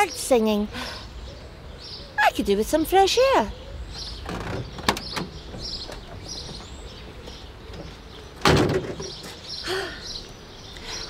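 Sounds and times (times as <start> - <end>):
small birds chirping: 0.0 - 11.0
car door clicking open: 4.2 - 6.7
car door slamming shut: 8.4 - 9.2.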